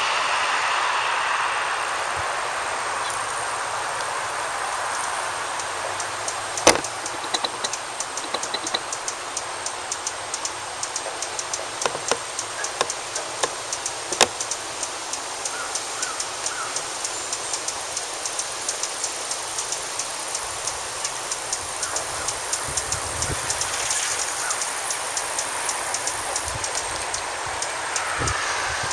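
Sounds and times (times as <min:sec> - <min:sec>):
road traffic hiss: 0:00.0 - 0:28.9
hummingbird chip calls: 0:03.0 - 0:28.9
loud clicks: 0:05.6 - 0:09.2, 0:10.0 - 0:14.6.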